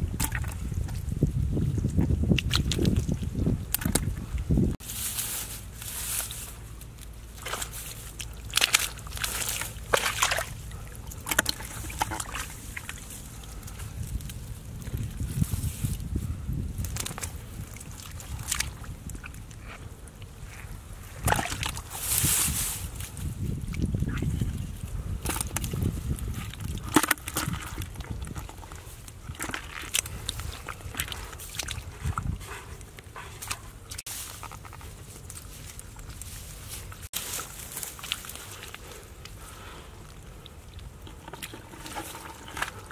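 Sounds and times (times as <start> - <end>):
hands squelching through mud: 0.0 - 42.9
water splashing: 7.3 - 13.5, 40.2 - 42.9.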